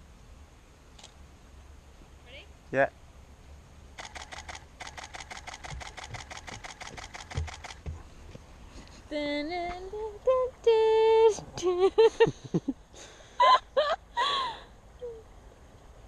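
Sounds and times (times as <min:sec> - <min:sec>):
camera shutter burst: 0:04.0 - 0:07.8.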